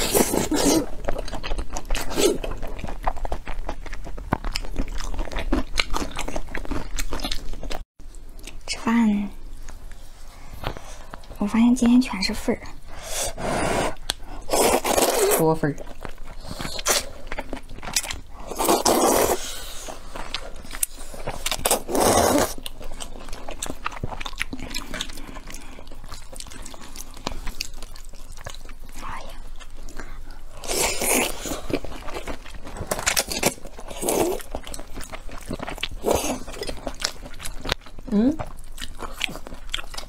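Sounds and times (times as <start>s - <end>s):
wet chewing: 0.0s - 8.6s, 9.5s - 40.0s
loud noodle slurps: 13.0s - 15.4s, 18.5s - 19.9s, 21.7s - 22.6s.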